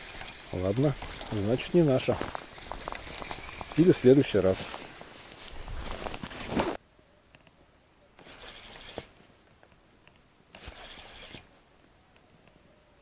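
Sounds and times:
spinning reel being cranked: 0:08.2 - 0:09.0, 0:10.6 - 0:11.4.

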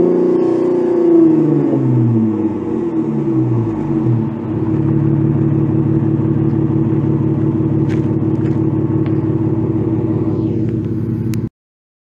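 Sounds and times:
car engine idling: 0:02.1 - 0:11.5.

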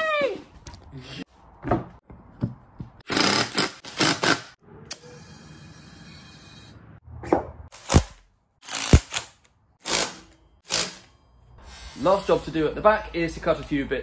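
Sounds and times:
air hissing into tyre: 0:11.6 - 0:12.4.

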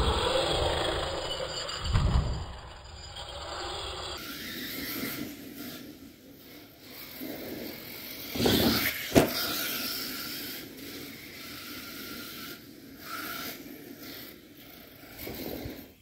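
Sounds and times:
rc truck motor and tyres: 0:00.0 - 0:16.0
sharp thump: 0:08.4 - 0:09.4.

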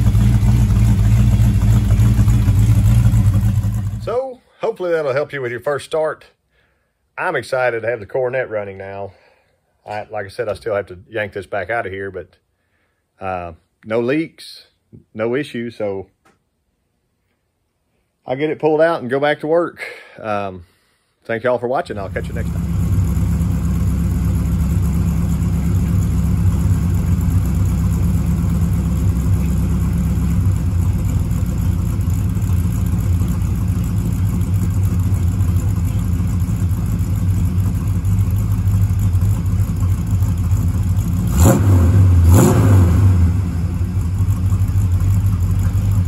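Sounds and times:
car engine idling and revving: 0:00.0 - 0:04.1, 0:22.0 - 0:46.0.

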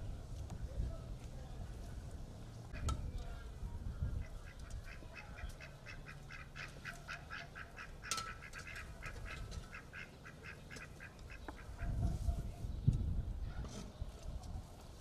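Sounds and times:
ducks quacking: 0:04.0 - 0:12.1.

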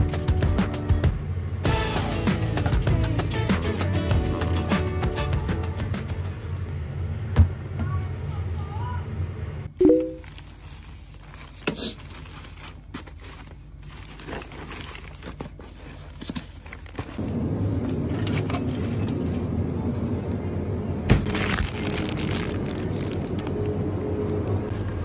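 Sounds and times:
low store hum: 0:04.9 - 0:25.0
plastic packaging crinkling: 0:10.2 - 0:17.2, 0:21.2 - 0:23.8.

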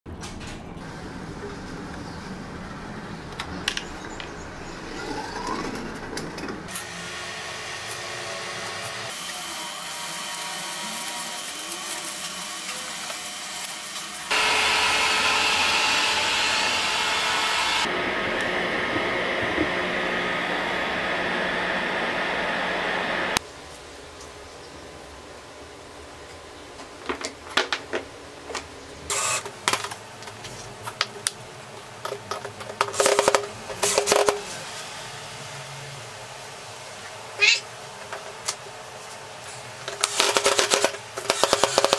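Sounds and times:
heat gun blowing: 0:06.7 - 0:18.6, 0:29.1 - 0:29.5.

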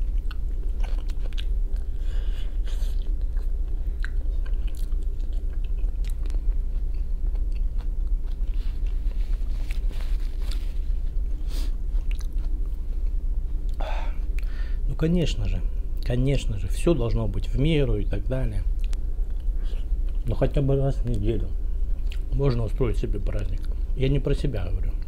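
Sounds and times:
mouth chewing with wet clicks: 0:00.0 - 0:02.0, 0:02.7 - 0:09.0, 0:12.0 - 0:12.8, 0:18.8 - 0:20.2, 0:22.0 - 0:22.3, 0:23.5 - 0:23.8
steady low hum: 0:00.0 - 0:25.0.

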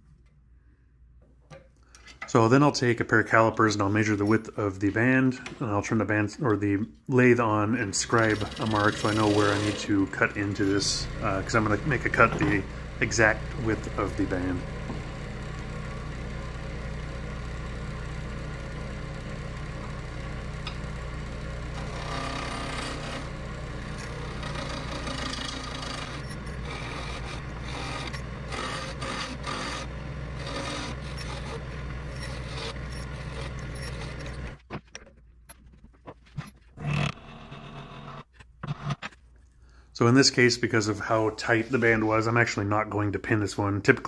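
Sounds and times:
wood lathe running: 0:07.4 - 0:34.6
turning tool scraping wood: 0:07.8 - 0:15.1, 0:21.7 - 0:34.7, 0:35.7 - 0:39.2.

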